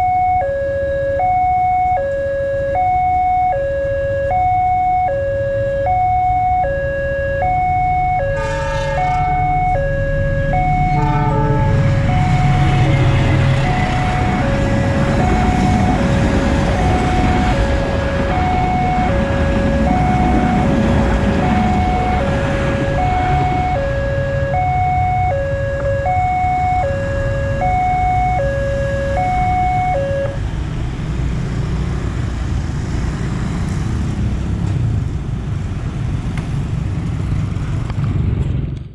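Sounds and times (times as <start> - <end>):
level crossing alarm chime: 0.0 - 30.4
motorcycle engines: 0.0 - 38.9
train horn blasts: 8.2 - 9.8, 10.8 - 14.5
train passing with clatter: 10.5 - 24.2.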